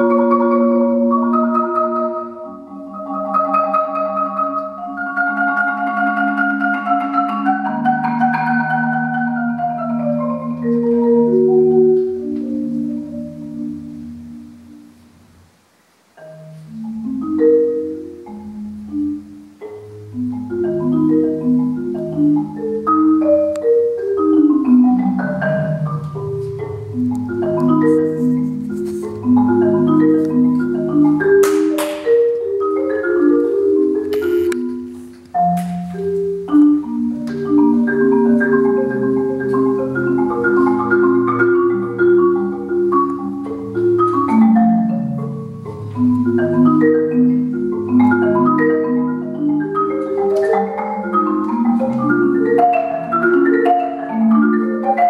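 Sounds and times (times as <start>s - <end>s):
marimba played with mallets: 0.0s - 15.5s, 16.2s - 55.0s.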